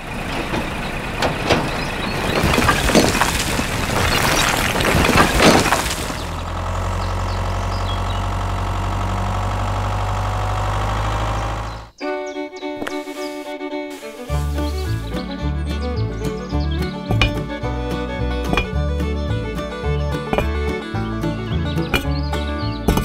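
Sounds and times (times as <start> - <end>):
toy bricks clattering and sliding: 2.1 - 6.4
music: 12.0 - 23.0.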